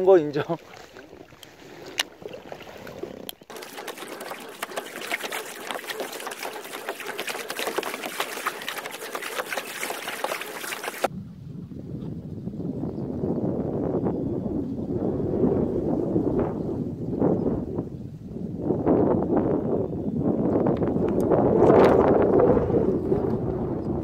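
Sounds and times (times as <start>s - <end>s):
water splashing against kayak hull: 0.0s - 11.1s.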